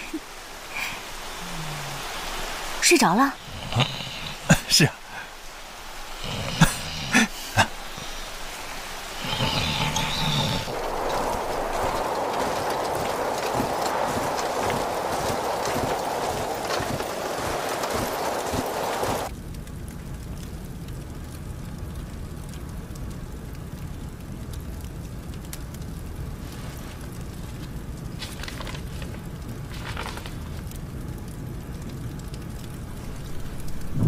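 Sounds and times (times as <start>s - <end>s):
loud hiss: 0.0s - 19.3s.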